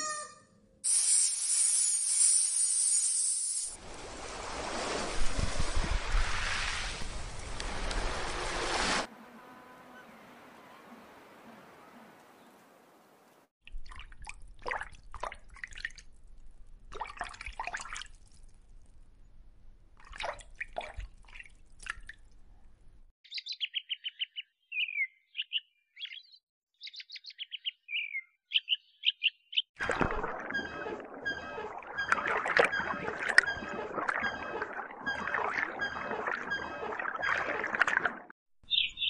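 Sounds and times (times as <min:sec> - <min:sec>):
robin singing: 0:23.2 - 0:29.7, 0:38.6 - 0:39.0
repeated chirps: 0:29.8 - 0:37.8.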